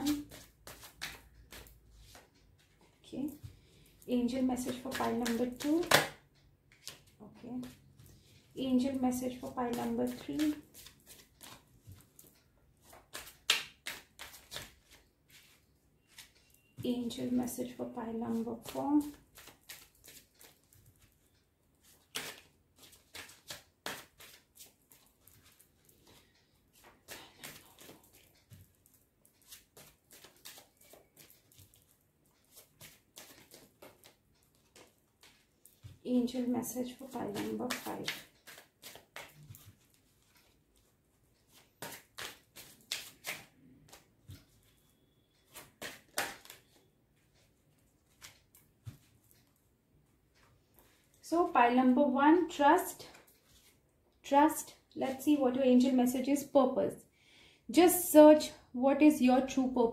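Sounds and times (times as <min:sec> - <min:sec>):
cards being shuffled: 0:00.0 - 0:02.3, 0:09.7 - 0:16.4, 0:18.3 - 0:21.2, 0:21.8 - 0:36.0, 0:37.0 - 0:40.6, 0:41.4 - 0:44.8, 0:45.5 - 0:46.8.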